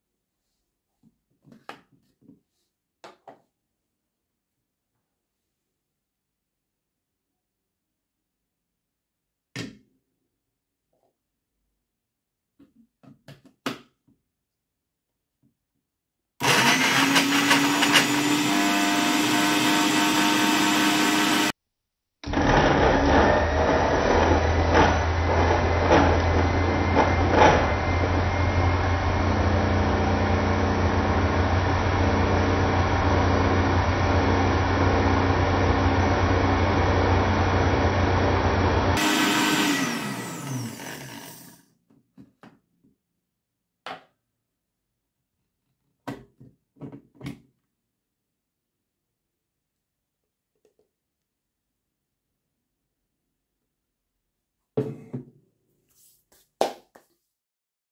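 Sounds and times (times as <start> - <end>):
blender motor running: 16.4 - 21.5, 22.2 - 41.6.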